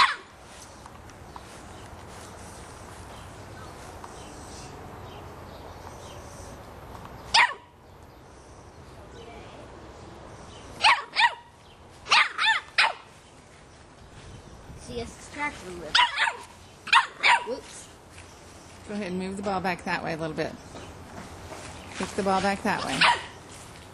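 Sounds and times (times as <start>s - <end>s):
puppy barking: 0.0s - 0.3s, 7.3s - 7.7s, 10.8s - 11.5s, 12.1s - 13.1s, 15.9s - 17.6s, 22.9s - 23.4s.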